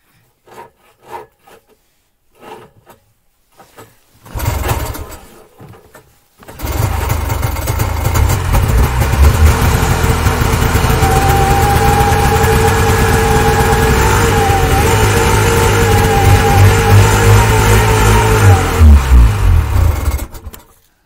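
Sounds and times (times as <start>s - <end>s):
snowmobile engine starting: 4.2s - 5.5s, 6.4s - 20.8s.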